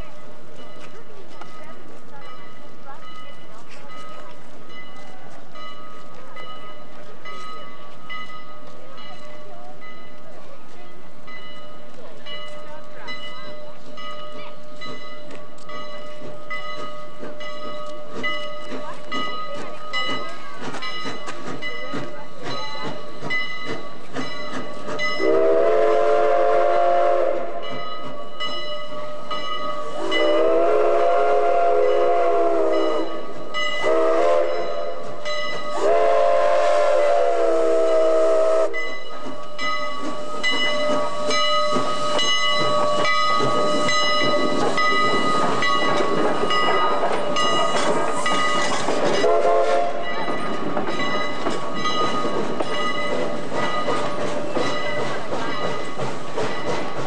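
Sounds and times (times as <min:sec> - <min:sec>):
steam locomotive chime whistle: 0:12.6 - 0:57.0
steam hissing: 0:28.9 - 0:57.0
bell ringing: 0:38.8 - 0:49.3, 0:50.0 - 0:56.7.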